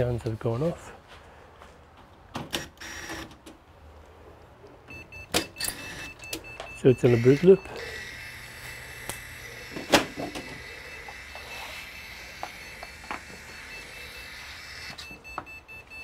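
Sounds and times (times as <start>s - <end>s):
computer humming: 4.8s - 16.0s.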